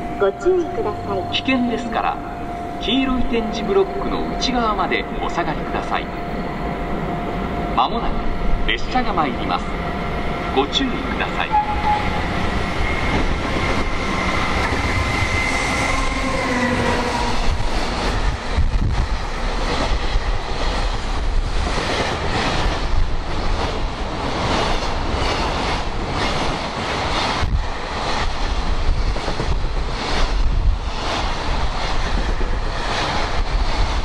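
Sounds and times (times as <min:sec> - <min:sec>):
locomotive tone dropping in pitch: 0:00.0 - 0:18.8
train wagons rumbling: 0:00.0 - 0:34.0
wind buffeting microphone: 0:09.7 - 0:34.0.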